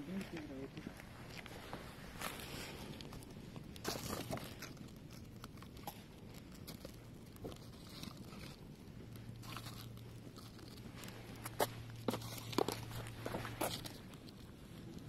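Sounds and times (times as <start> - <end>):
burning paper crackling: 0.0 - 15.0.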